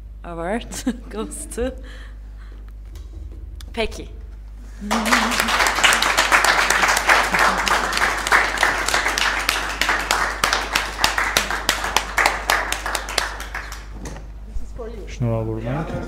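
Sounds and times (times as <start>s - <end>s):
people clapping: 4.8s - 14.2s.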